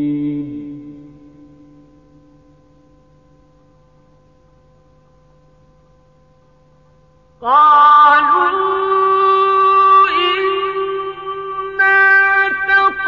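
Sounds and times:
man reciting melodically: 0:00.0 - 0:01.3.

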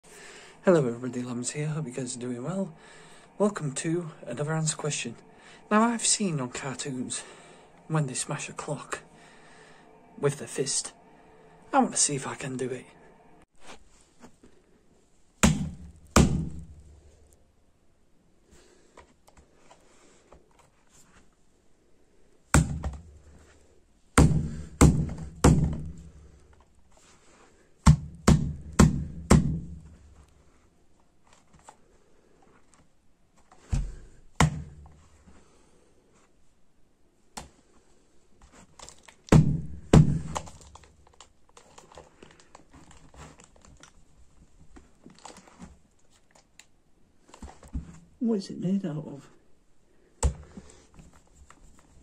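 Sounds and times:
fist punching plastic clock: 0:15.4 - 0:16.8, 0:27.8 - 0:29.9, 0:39.2 - 0:40.9.

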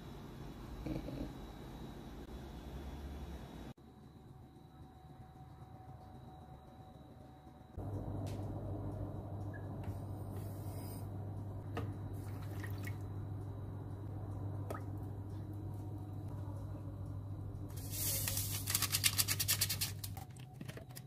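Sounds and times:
low hum: 0:00.4 - 0:18.6.

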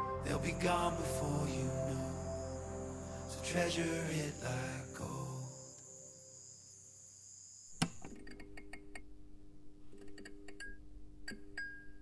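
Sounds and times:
low steady drone: 0:00.0 - 0:06.2
faint music: 0:00.0 - 0:06.4.

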